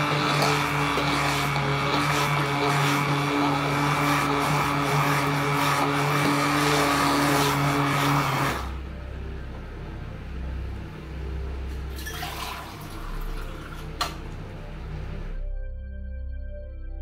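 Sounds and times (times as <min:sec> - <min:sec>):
immersion blender motor whine: 0:00.0 - 0:08.8.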